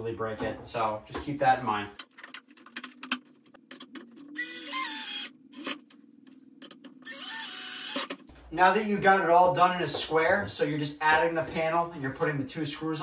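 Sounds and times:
cordless drill driving screws: 4.4 - 5.3, 7.0 - 8.1.

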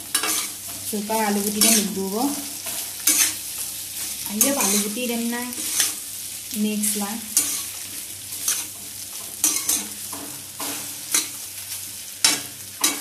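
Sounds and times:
frying sizzle: 0.0 - 13.0
metal spoon scraping pan: 0.1 - 0.6, 2.6 - 3.4, 4.3 - 6.0, 7.4 - 7.8, 9.4 - 11.4.

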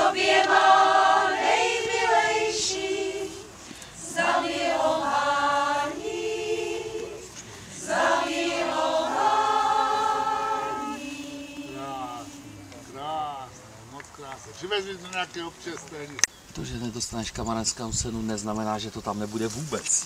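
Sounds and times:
women's choir singing unaccompanied: 0.0 - 13.3.

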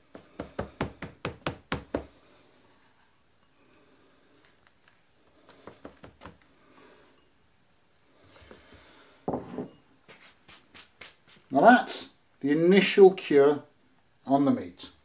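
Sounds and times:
hands tapping meat: 0.0 - 2.1, 5.6 - 6.4.

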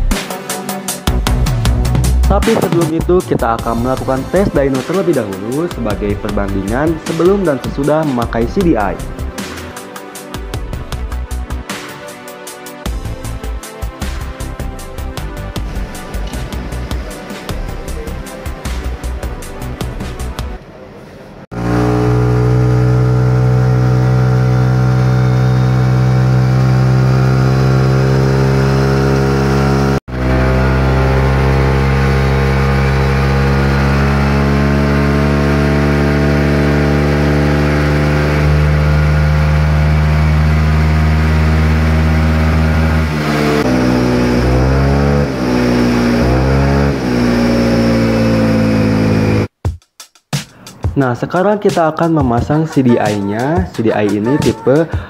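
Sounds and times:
scooter engine revving: 21.5 - 49.5.

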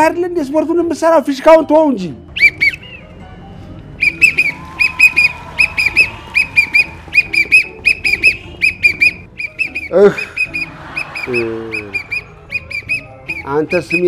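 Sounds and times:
sports whistle short toots: 4.0 - 14.0.

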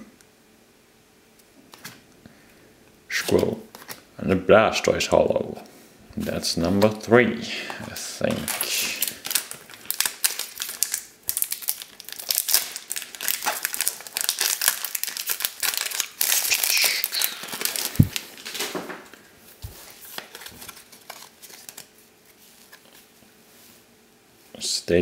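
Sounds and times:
wrapper tearing and crinkling: 7.9 - 18.8, 19.7 - 23.0.

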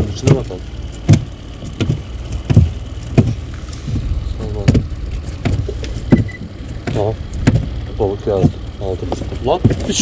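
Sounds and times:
low steady rumble: 0.0 - 10.0
hollow knocks on boat hull: 1.0 - 3.4, 4.6 - 7.7.

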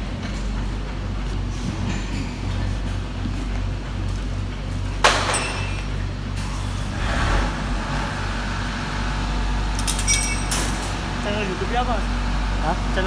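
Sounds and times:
sharp metallic clank: 9.8 - 10.9.

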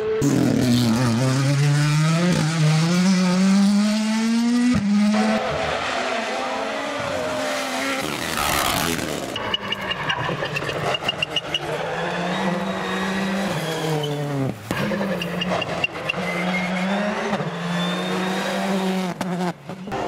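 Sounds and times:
rally car engines revving: 0.0 - 20.0.

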